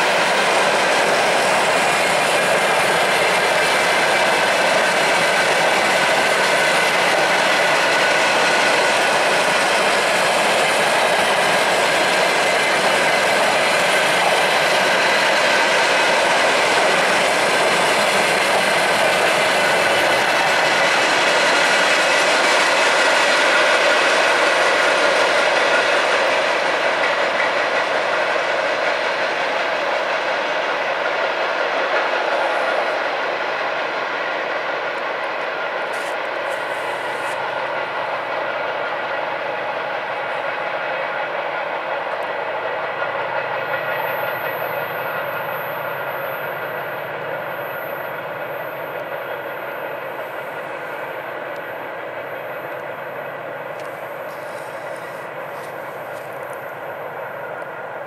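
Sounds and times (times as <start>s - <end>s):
train wheels rolling on track: 0.0s - 58.0s.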